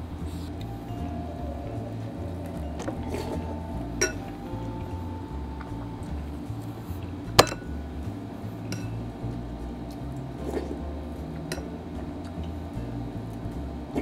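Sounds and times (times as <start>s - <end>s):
spoon clinking on glass bowl: 3.0s - 4.3s.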